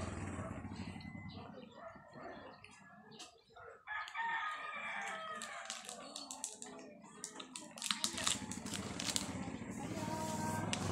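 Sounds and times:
rooster crowing: 3.9s - 5.7s
foil wrapper crinkling: 5.4s - 9.4s.

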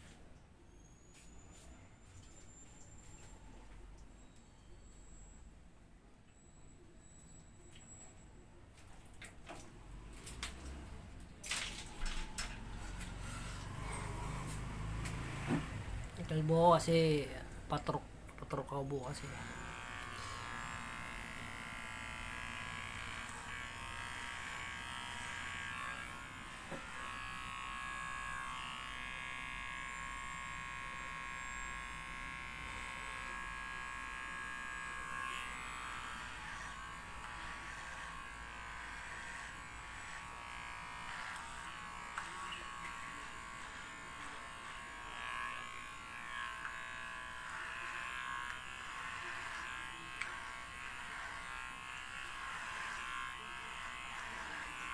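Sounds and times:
electric hair clipper buzzing: 11.5s - 18.0s, 18.8s - 54.9s.

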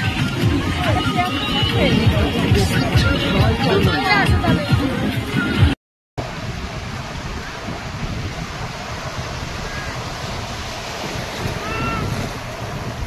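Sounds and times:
wind buffeting microphone: 0.0s - 13.0s
surf washing on a beach: 6.2s - 13.0s.

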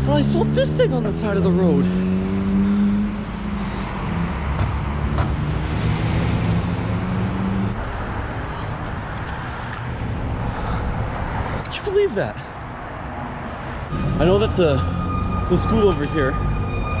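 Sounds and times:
engine hum: 0.0s - 11.7s
cars passing rumble: 0.0s - 17.0s.

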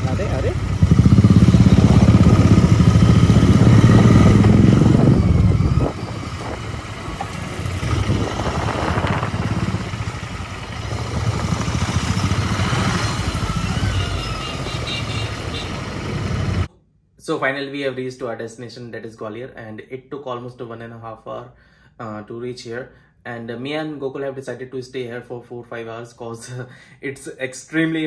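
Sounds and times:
motorcycle engine running: 0.0s - 16.7s.

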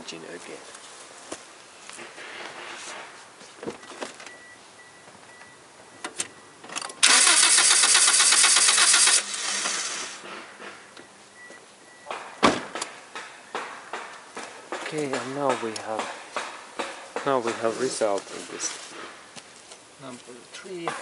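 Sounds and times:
starter motor cranking engine: 7.0s - 10.2s.

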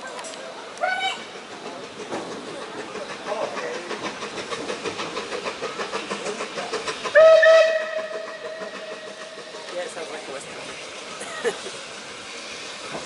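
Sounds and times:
steam locomotive passing: 0.0s - 13.0s
single-note train whistle: 7.2s - 8.4s.

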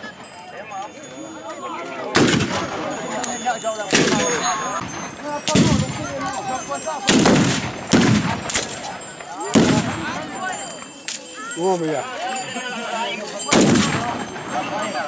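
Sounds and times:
voices calling out: 0.0s - 15.0s
loud gunshots: 2.1s - 2.8s, 3.9s - 6.1s, 7.1s - 8.9s, 9.5s - 10.1s, 13.5s - 14.3s.

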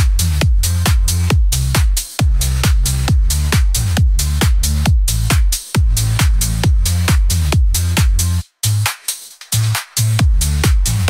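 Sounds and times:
electronic dance music: 0.0s - 11.0s.

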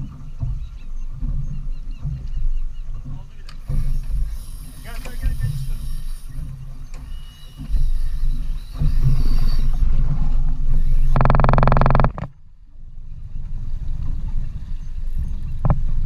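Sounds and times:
fishing reel drag buzzing: 3.6s - 12.4s.

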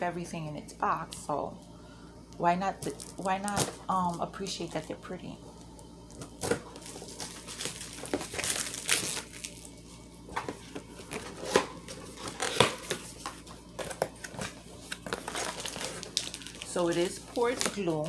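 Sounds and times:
packaging crinkling: 6.1s - 9.8s, 10.5s - 18.0s.

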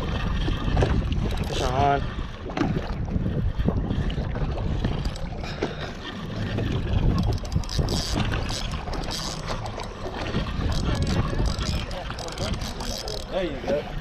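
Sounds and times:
boat engine rumble: 0.0s - 14.0s
wind buffeting microphone: 0.0s - 14.0s.

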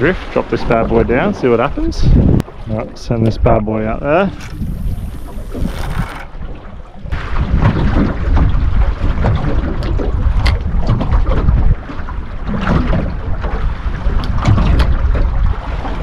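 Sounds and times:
water lapping at hull: 0.0s - 16.0s
wind rumbling on microphone: 0.0s - 16.0s.

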